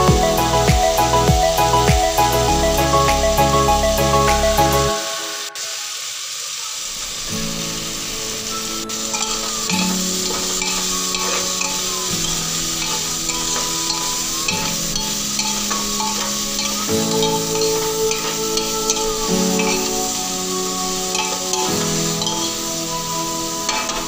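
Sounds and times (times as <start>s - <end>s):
food sizzling in a pot: 4.9s - 24.0s
spoon stirring: 8.9s - 24.0s.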